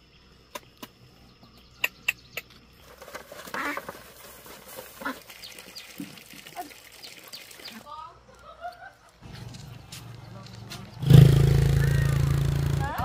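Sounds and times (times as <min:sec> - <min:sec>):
grain being poured: 0:02.8 - 0:07.8
ducks quacking: 0:03.4 - 0:04.0, 0:04.9 - 0:05.6.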